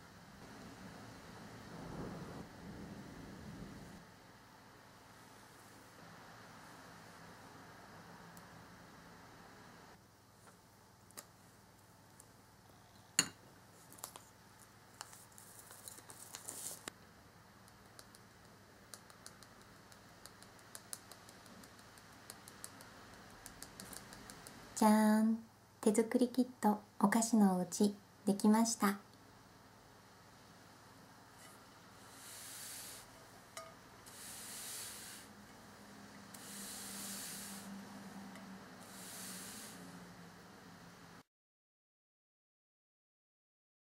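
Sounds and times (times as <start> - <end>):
tea strainer tapping: 33.6 - 33.8.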